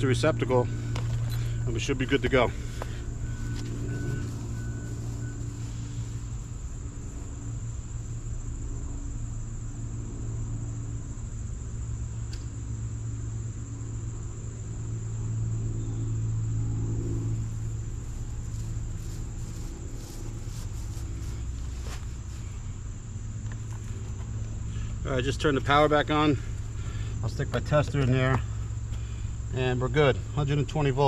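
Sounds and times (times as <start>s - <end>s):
low mechanical hum: 0.0s - 31.0s.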